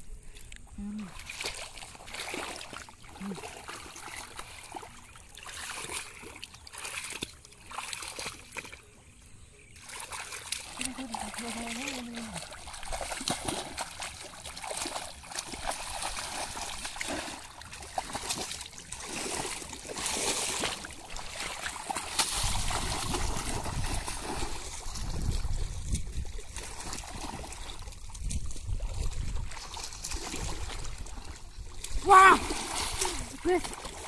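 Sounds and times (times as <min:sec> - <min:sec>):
hands squelching through wet mud: 0:00.2 - 0:09.0, 0:09.7 - 0:34.0
small water splashes: 0:00.2 - 0:34.0
wind rumble on microphone: 0:22.3 - 0:33.3.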